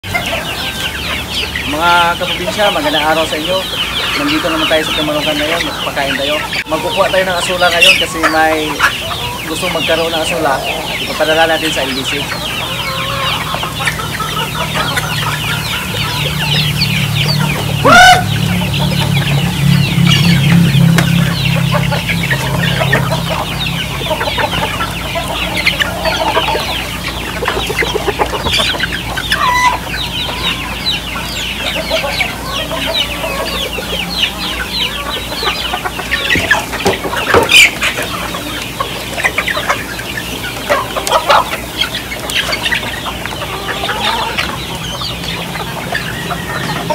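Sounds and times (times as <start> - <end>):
chicken squawking: 0.0 - 46.9
chickens clucking: 0.0 - 46.9.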